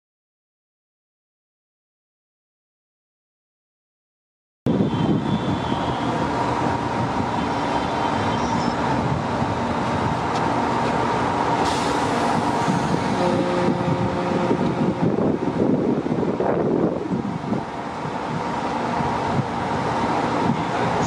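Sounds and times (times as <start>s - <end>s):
continuous rushing background: 4.7s - 21.0s
locomotive equipment humming: 4.9s - 21.0s.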